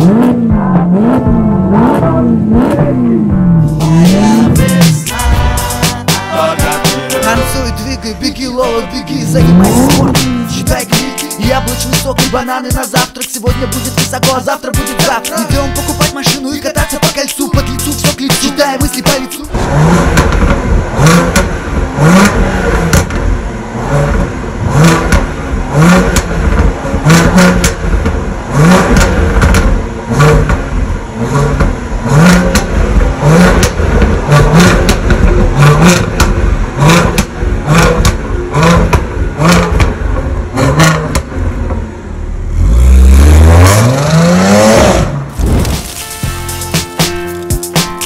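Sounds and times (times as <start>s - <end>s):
car engine blipping: 0.0s - 48.0s
exhaust crackles and pops: 18.1s - 42.2s, 45.0s - 48.0s.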